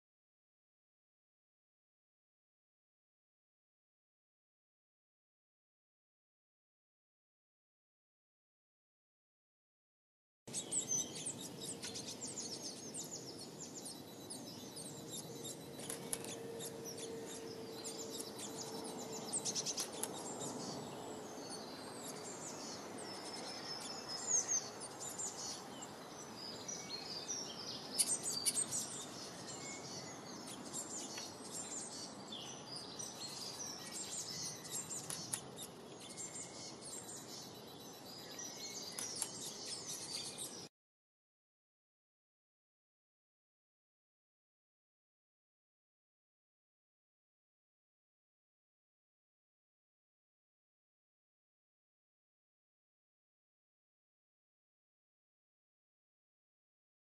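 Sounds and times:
birds chirping and twittering: 10.5 - 40.7.

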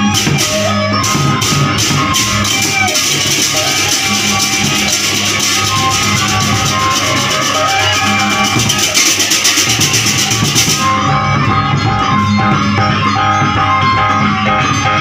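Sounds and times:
bamboo flute notes: 0.0 - 15.0
drums: 0.0 - 15.0
gamelan music: 0.0 - 15.0
high shimmer: 0.4 - 12.0.

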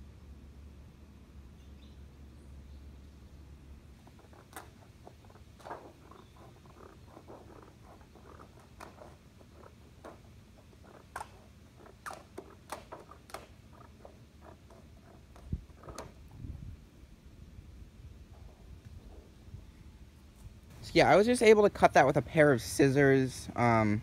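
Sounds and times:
sheet metal crinkling: 4.0 - 16.4.

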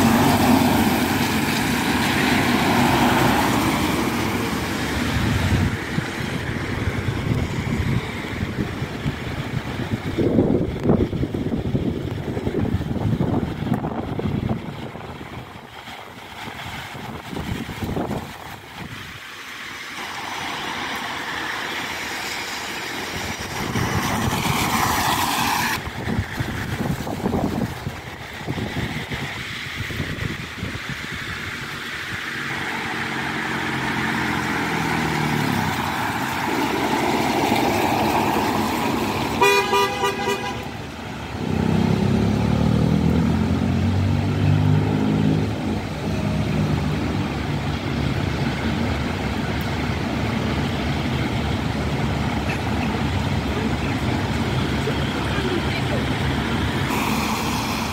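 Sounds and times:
heavy engine running: 0.0 - 57.9
vehicles passing on wet road: 0.0 - 57.9
short horn blast: 39.4 - 40.8.

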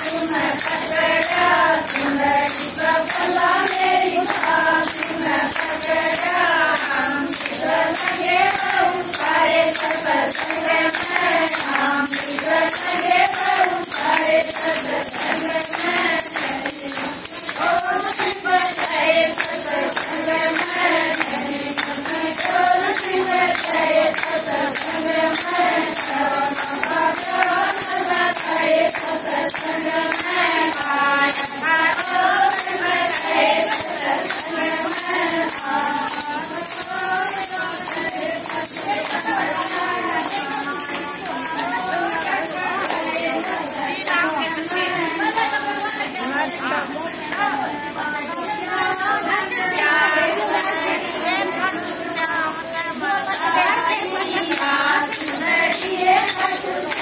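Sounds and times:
jingling percussion beat: 0.0 - 57.0
women singing devotional song: 0.0 - 57.0.

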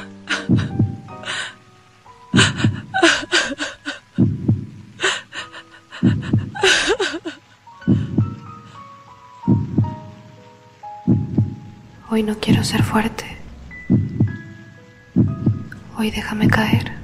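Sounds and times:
quiet held music tones: 0.0 - 17.0
heartbeat thuds: 0.3 - 1.1, 2.4 - 3.0, 4.2 - 4.8, 6.0 - 6.7, 7.9 - 8.4, 9.5 - 10.1, 11.1 - 11.8, 13.8 - 14.5, 15.1 - 15.8.

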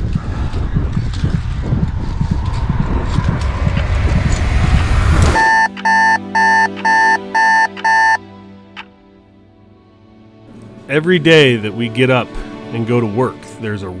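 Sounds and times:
wind buffeting microphone: 0.0 - 5.4
alarm clock beeping: 5.4 - 8.2.

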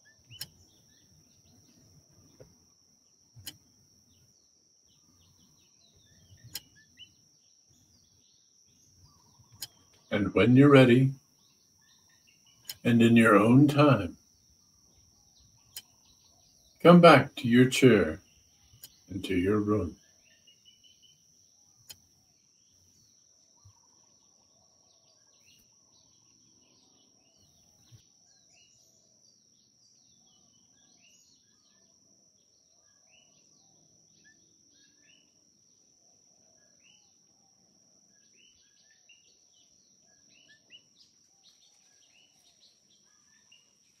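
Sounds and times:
high insect drone: 0.0 - 44.0.

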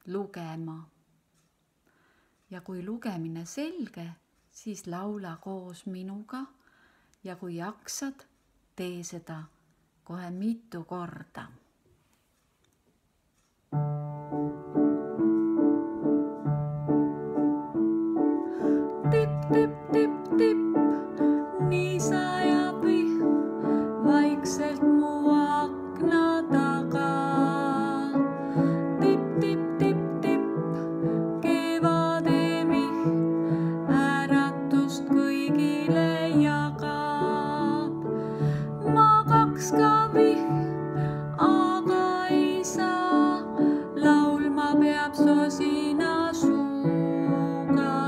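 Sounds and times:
woman singing a lullaby: 0.0 - 0.9, 2.5 - 6.5, 18.3 - 48.0
piano accompaniment: 13.7 - 48.0.

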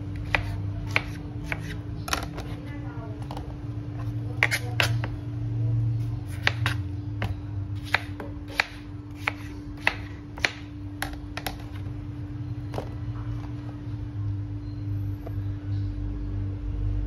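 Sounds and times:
steady low hum: 0.0 - 17.0
knife chopping on plastic board: 0.2 - 2.6, 3.2 - 5.2, 6.2 - 11.8.

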